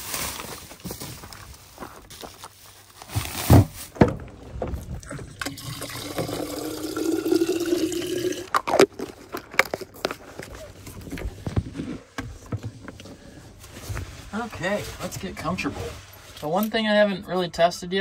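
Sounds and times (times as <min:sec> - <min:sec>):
water pouring into a bottle: 0:05.0 - 0:09.2.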